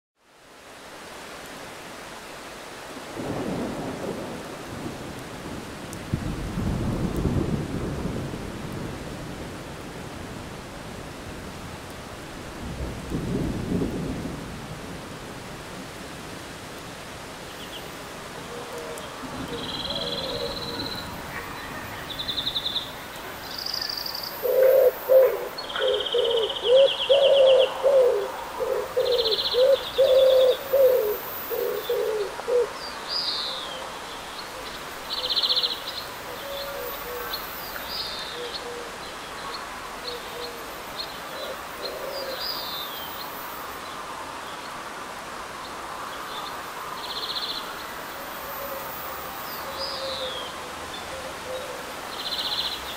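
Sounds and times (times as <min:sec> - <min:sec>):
steady rain: 0:00.2 - 0:52.9
low rapid bird calls: 0:18.5 - 0:33.8.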